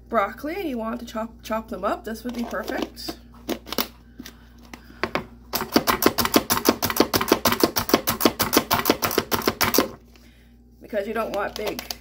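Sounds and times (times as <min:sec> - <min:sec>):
blades chopping broccoli: 0:05.6 - 0:10.0
food chopper plunger clacking: 0:05.6 - 0:10.0.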